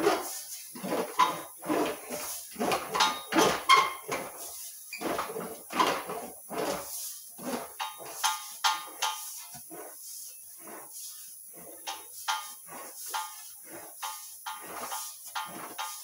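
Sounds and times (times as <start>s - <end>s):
metal panel squeaky rolling strokes: 0.2s - 6.9s.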